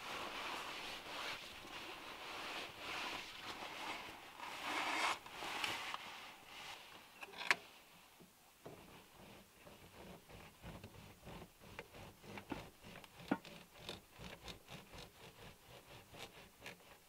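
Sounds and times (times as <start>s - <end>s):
uneven rustling: 0.0s - 8.0s.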